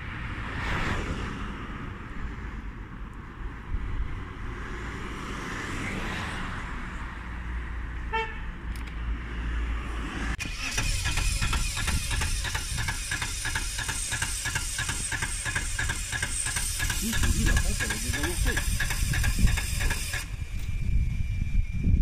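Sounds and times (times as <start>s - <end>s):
car traffic rumble: 0.0s - 21.9s
car horn toot: 8.1s - 8.5s.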